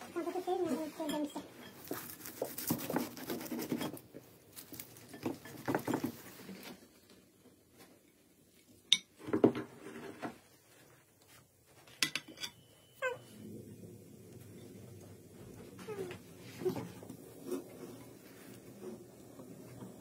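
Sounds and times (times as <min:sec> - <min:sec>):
knife clinking on plates: 0:12.0 - 0:12.7.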